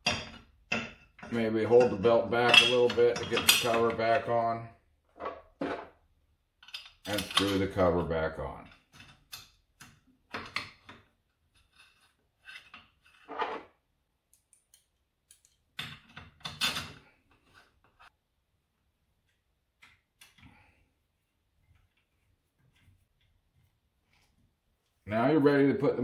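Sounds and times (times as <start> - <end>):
screwdriver and screws clicking on metal: 14.3 - 16.9.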